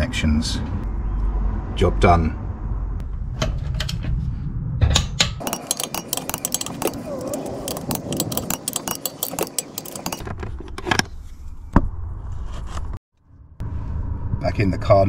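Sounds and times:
ratchet wrench clicking rapidly: 5.4 - 10.3.

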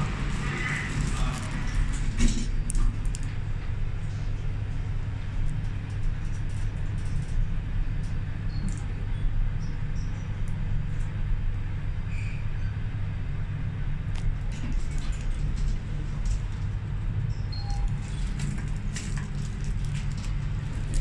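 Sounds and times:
lift car rumbling: 0.0 - 6.2.

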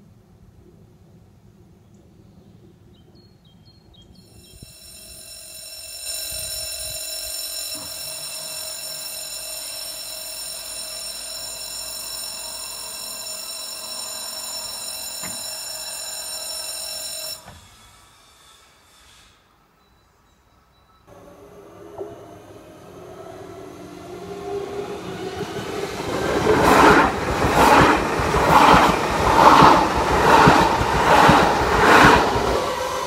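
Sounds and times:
electronic level crossing bell ringing: 4.3 - 17.5.

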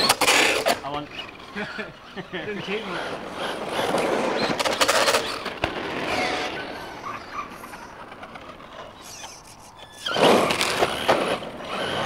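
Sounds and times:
tyre noise on tarmac: 0.0 - 12.0
electric motor whine: 9.9 - 12.0.

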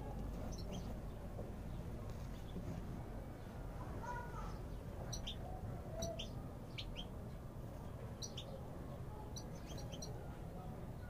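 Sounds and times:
low background noise: 0.0 - 11.0
finches chirping: 0.4 - 1.8, 4.4 - 7.2, 8.2 - 8.6, 9.2 - 10.2.

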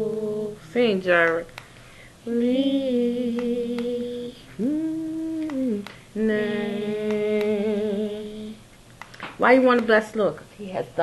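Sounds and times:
woman humming a melody: 2.3 - 8.6.

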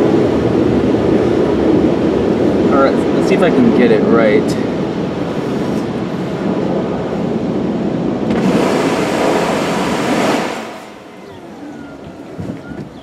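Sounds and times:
water spray hissing on car: 8.3 - 11.0.

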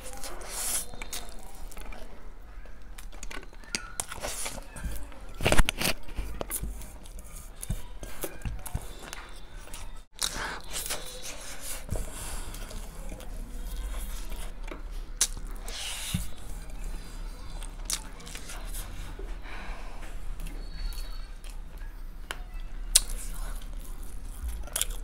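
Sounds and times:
chewing and lip smacks: 5.6 - 15.7, 20.4 - 25.0.

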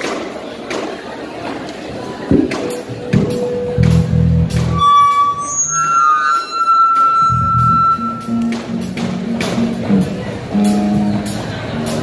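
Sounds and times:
long high sung note: 4.7 - 8.5
live pop-rock band playing: 6.4 - 12.0.

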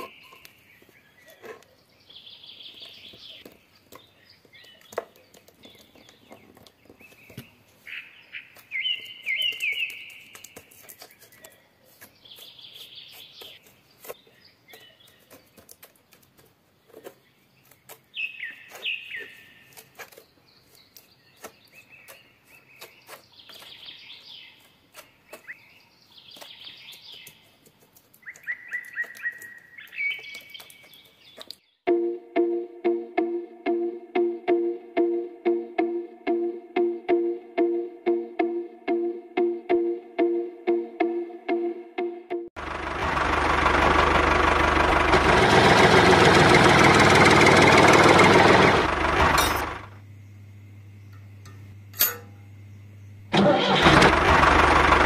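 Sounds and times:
small birds chirping: 0.0 - 31.8.

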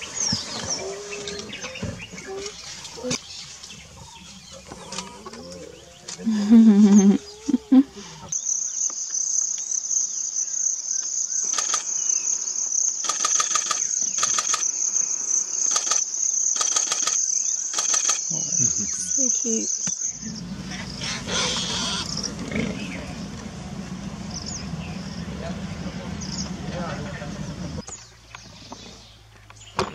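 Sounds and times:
insects droning: 0.0 - 29.0
loud low calls: 18.3 - 27.8.

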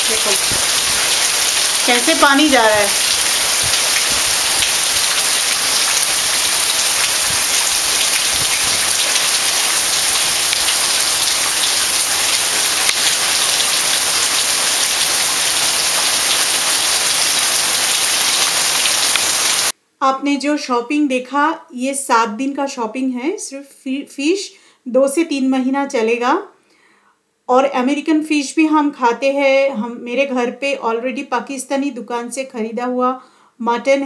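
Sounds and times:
heavy rain pouring: 0.0 - 19.7.

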